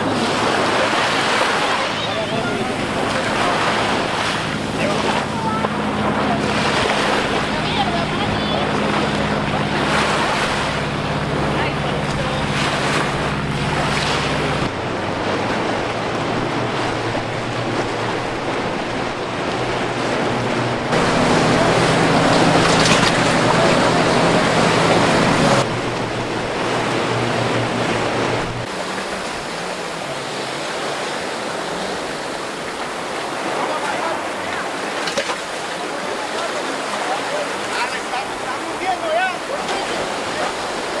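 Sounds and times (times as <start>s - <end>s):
breaking waves: 0.0s - 41.0s
motorboat engines running: 0.0s - 41.0s
wind: 0.0s - 41.0s.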